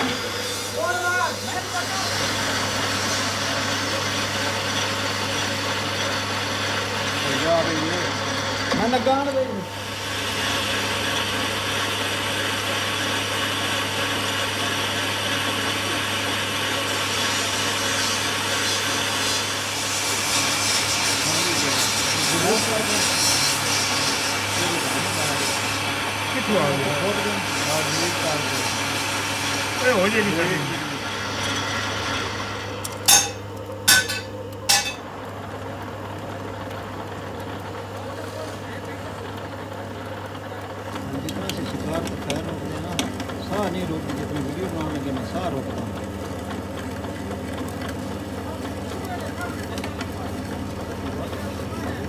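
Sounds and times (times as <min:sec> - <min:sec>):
cutting tool hissing on metal: 0:00.0 - 0:04.4, 0:09.5 - 0:33.4
lathe motor humming: 0:00.0 - 0:52.0
sharp metallic knocks: 0:33.1 - 0:35.0.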